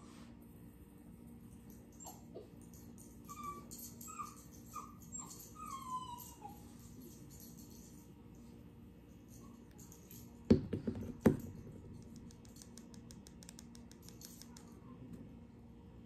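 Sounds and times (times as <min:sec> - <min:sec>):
steady low hum: 0:06.2 - 0:16.0.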